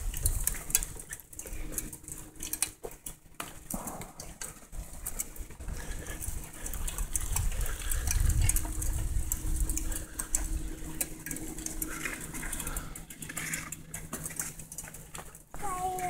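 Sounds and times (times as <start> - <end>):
wind rumbling on microphone: 0.0 - 1.7, 3.8 - 13.0
bicycle tyres rolling on dirt: 0.0 - 16.0
bike ticks and rattles: 0.0 - 16.0.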